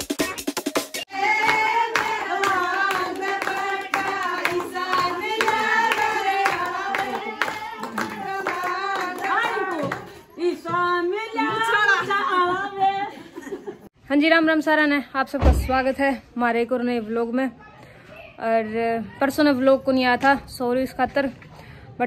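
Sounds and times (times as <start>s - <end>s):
women singing: 1.1s - 13.7s
hand-clapping: 1.2s - 10.2s.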